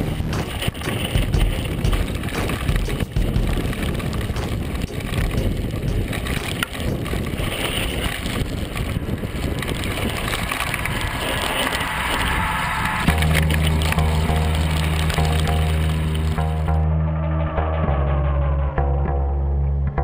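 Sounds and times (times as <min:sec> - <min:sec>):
bike rattling over bumps: 0:00.0 - 0:12.3
tyres rolling over dirt and stones: 0:00.0 - 0:12.5
wind rushing on microphone: 0:00.0 - 0:14.7.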